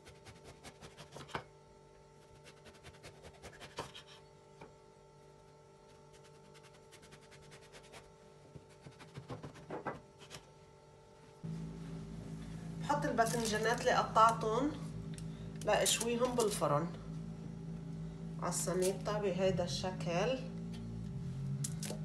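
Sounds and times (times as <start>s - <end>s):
knife sawing through eggplant: 0.0s - 1.4s, 2.2s - 4.2s, 5.9s - 10.4s.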